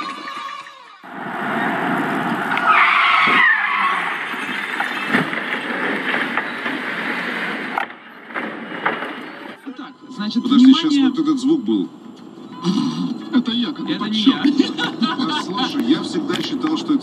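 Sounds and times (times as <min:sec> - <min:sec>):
car tyres squealing: 0:00.0 - 0:09.6
car crash impact: 0:01.3 - 0:09.5.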